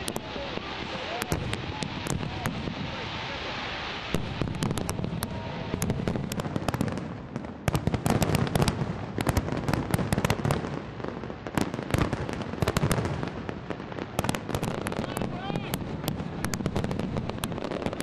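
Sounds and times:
fireworks bangs and crackling: 0:00.0 - 0:18.0.

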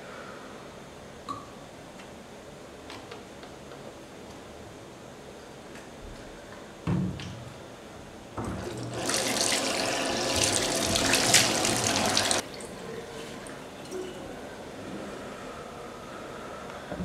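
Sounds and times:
water running: 0:08.4 - 0:14.2.

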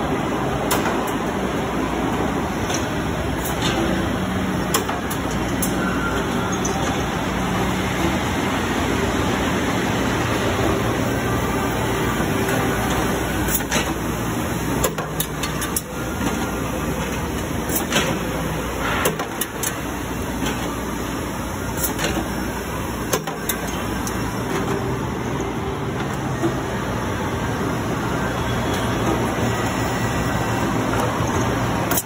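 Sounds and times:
industrial machinery hum: 0:00.0 - 0:32.0
sharp clicks and metallic knocks: 0:00.6 - 0:01.2, 0:04.7 - 0:05.8, 0:23.1 - 0:24.8, 0:30.9 - 0:32.0.

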